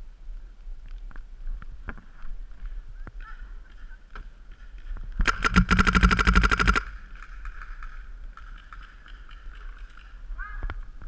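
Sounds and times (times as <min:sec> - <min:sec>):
paintball marker rapid firing: 0:05.2 - 0:07.1.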